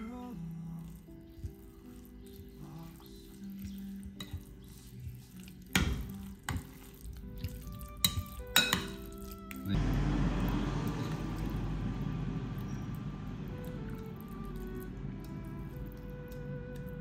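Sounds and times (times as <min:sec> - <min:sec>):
soft background music: 0:00.0 - 0:17.0
spoon stirring in a glass bowl: 0:00.7 - 0:09.7
spoon clinking against glass: 0:08.0 - 0:09.0.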